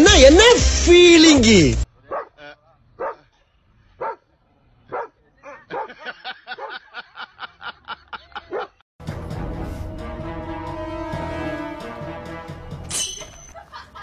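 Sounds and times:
music: 0.0 - 1.8, 9.0 - 13.5
dog barking: 2.1 - 2.4, 3.0 - 3.3, 4.0 - 4.3, 4.9 - 6.8, 8.5 - 8.8.

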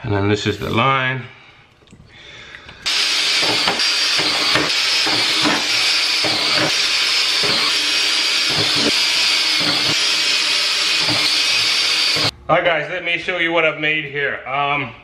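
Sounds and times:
cordless drill boring through plastic: 2.8 - 12.3.

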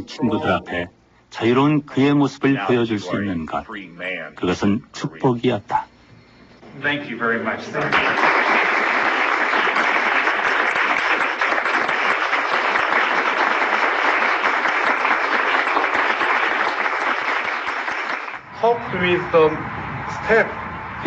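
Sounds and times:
audience applauding: 7.8 - 18.4.

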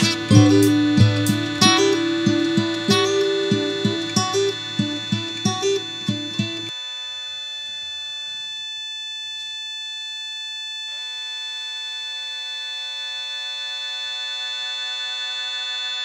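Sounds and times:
sustained musical drone chord: 0.0 - 6.7.

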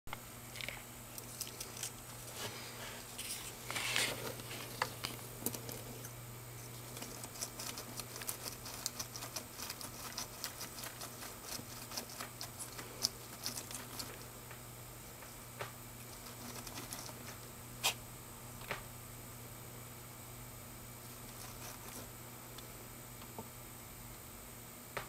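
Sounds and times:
lizard chewing: 0.5 - 2.4, 4.0 - 14.3, 16.0 - 18.0, 21.0 - 22.1
bark chips crackling: 0.6 - 2.3, 6.7 - 14.3.

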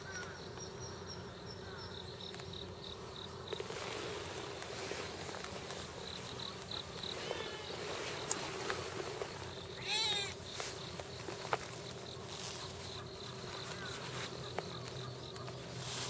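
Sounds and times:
cat meowing: 9.8 - 10.4.

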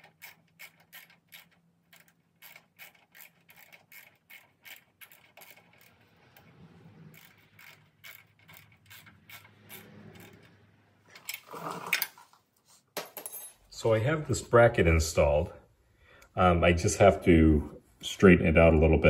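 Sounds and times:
ratcheting wrench clicking: 0.0 - 10.6.

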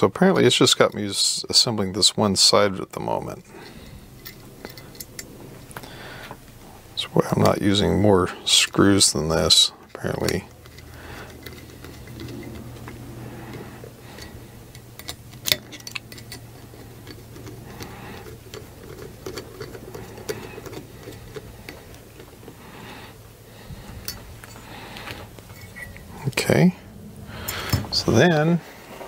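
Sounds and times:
steady low hum: 0.0 - 29.0
small metal parts clicking: 3.6 - 5.9, 9.9 - 22.6.

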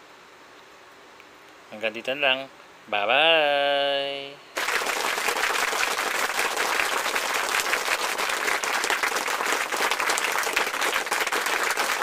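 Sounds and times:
crowd applause: 4.6 - 12.0.

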